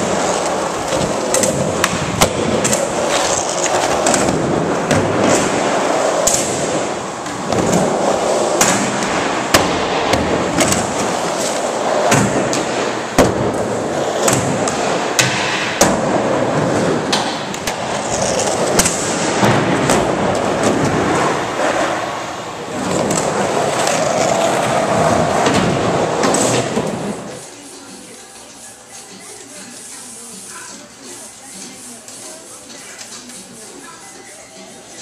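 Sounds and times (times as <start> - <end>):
skateboard wheels rolling on wood: 0.0 - 27.4.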